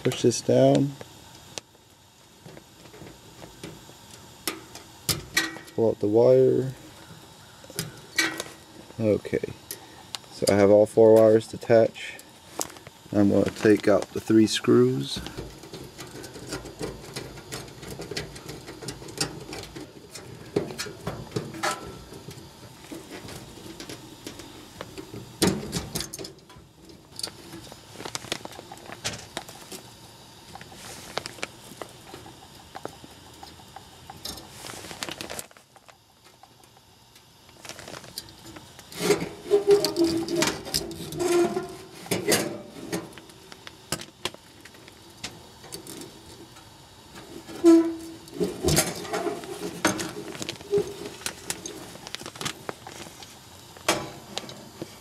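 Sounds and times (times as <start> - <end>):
metal clatter and squeaks: 39.0 - 42.5.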